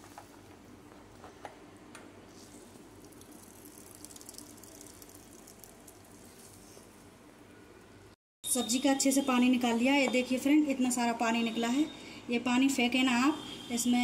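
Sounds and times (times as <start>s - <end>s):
wet crackling of squeezed vegetables: 2.9s - 6.8s.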